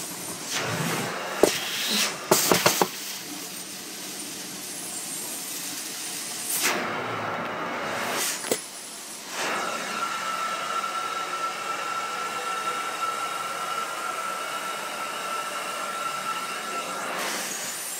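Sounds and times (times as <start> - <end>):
carpet extraction wand hissing: 0.0 - 6.9, 7.9 - 10.3, 15.4 - 17.9
high steady whistle: 9.5 - 17.7.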